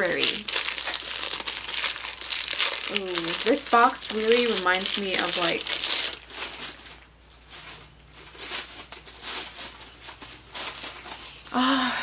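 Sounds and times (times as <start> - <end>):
packaging rustling and crinkling: 0.0 - 11.6.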